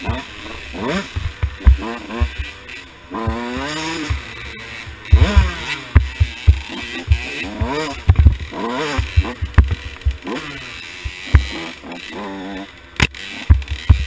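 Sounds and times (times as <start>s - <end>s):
dirt bike engine revving: 0.0s - 14.0s
low thumps: 0.1s - 2.6s, 3.2s - 10.4s.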